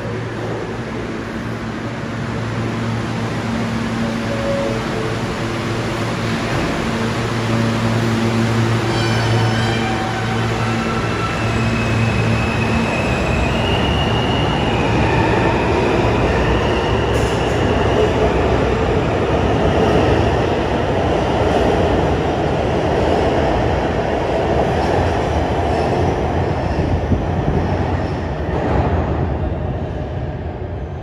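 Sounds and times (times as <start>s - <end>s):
subway train rumbling past: 0.0s - 31.0s.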